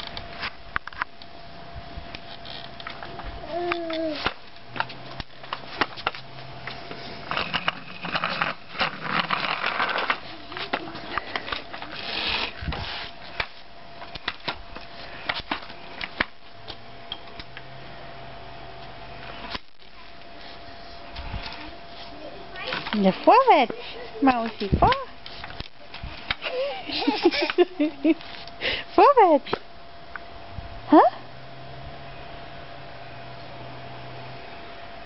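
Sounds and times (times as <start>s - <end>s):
plastic wheels rolling on bricks: 2.2s - 16.5s, 19.2s - 28.4s
wheels scraping: 2.2s - 16.8s.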